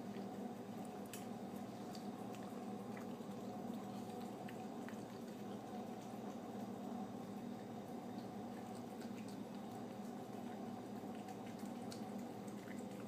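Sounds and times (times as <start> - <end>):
cat chewing wet food: 0.0 - 13.0
steady background hum: 0.0 - 13.0.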